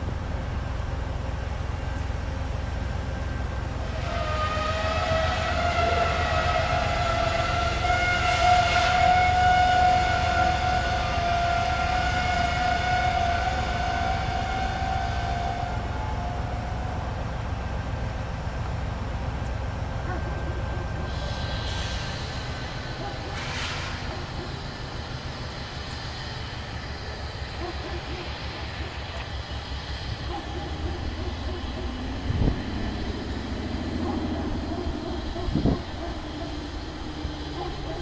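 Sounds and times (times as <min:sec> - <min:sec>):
low train engine rumble: 0:00.0 - 0:38.0
locomotive air horn blast: 0:03.6 - 0:17.3, 0:20.0 - 0:25.0.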